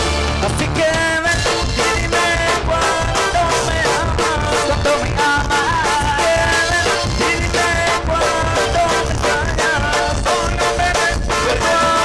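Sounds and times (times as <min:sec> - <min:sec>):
instrumental band music: 0:00.0 - 0:12.0.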